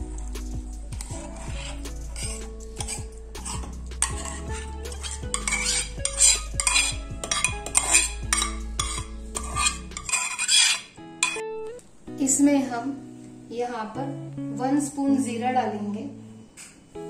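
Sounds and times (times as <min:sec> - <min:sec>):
background music: 0:00.0 - 0:17.0
spoon scraping a steel bowl: 0:01.0 - 0:11.4.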